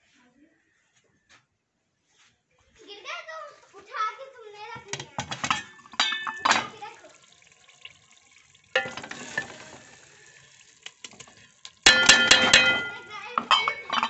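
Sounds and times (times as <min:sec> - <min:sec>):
ladle knocking on metal pot: 0:04.9 - 0:06.7, 0:08.8 - 0:09.8, 0:11.9 - 0:14.0
liquid sizzling in a pot: 0:05.2 - 0:14.0.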